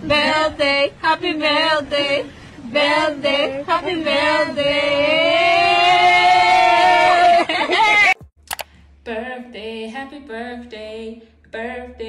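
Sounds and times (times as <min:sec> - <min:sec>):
voices singing: 0:00.0 - 0:08.2.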